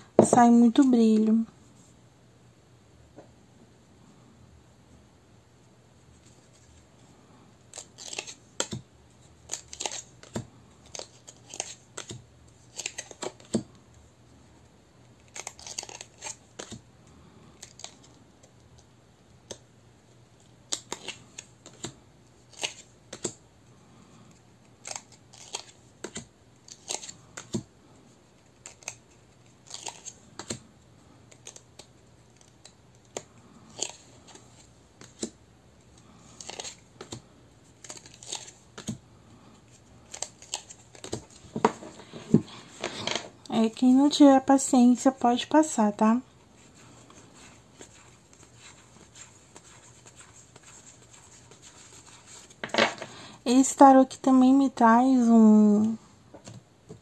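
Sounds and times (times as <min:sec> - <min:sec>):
cards clicking and snapping: 0:07.7 - 0:08.8, 0:09.4 - 0:13.6, 0:15.2 - 0:16.8, 0:20.6 - 0:23.4, 0:24.8 - 0:27.7, 0:28.4 - 0:30.6, 0:31.3 - 0:34.4, 0:35.0 - 0:35.4, 0:36.3 - 0:37.2, 0:37.8 - 0:39.0, 0:40.1 - 0:41.4.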